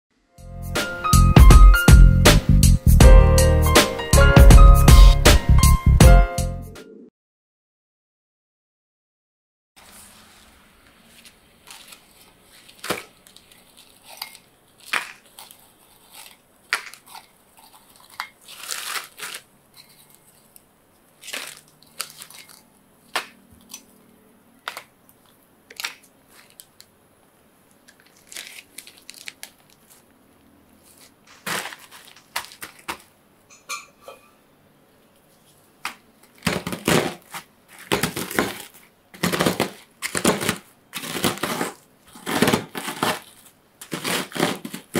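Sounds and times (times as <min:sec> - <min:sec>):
plastic bag crinkling: 0:09.8 - 0:24.0, 0:24.6 - 0:27.0, 0:27.6 - 0:33.2, 0:35.4 - 0:44.9
rolling pin crushing biscuits: 0:10.9 - 0:24.0, 0:24.6 - 0:27.0, 0:27.8 - 0:33.2, 0:35.8 - 0:44.9.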